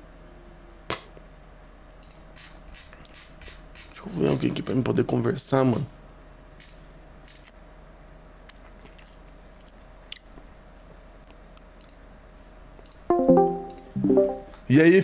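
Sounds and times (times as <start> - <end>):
faint electrical hum: 0.0 - 15.0
loud pitched sound: 13.1 - 14.6.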